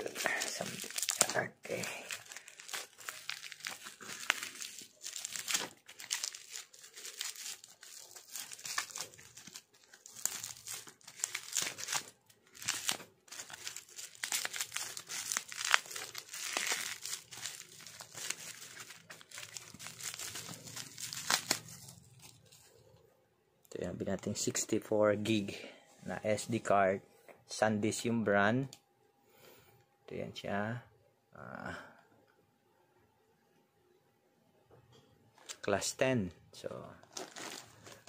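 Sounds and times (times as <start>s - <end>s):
bubble wrap crinkling: 0.0s - 22.8s, 37.0s - 38.0s.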